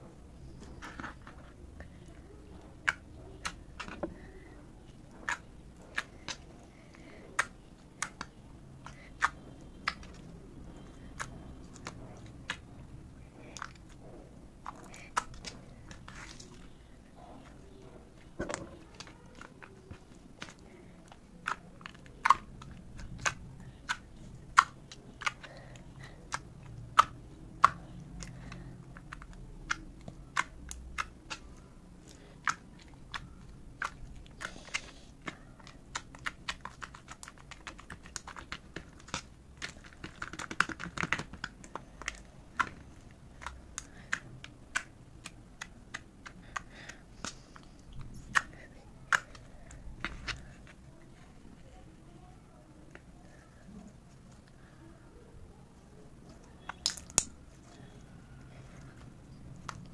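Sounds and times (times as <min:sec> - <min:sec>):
slime squishing: 0:00.1 - 0:59.9
slime sticky clicks and pops: 0:56.6 - 0:57.4.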